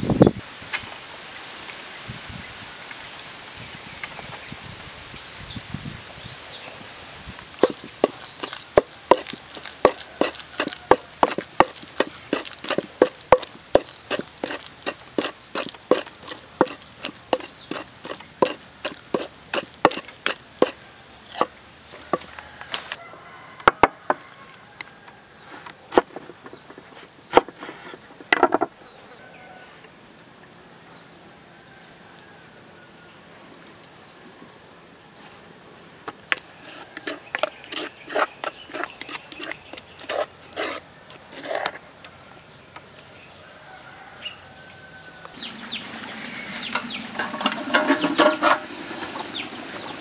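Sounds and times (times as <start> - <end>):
pestle pounding in wooden mortar: 7.6 - 22.3.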